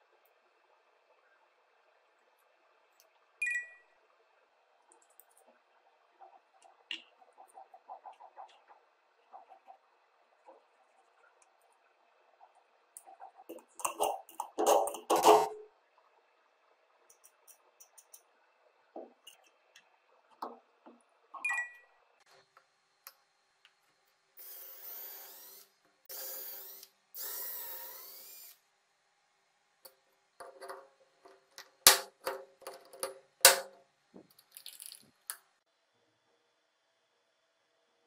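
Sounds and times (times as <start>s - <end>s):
small electric drill boring wood: 24.4s - 28.6s.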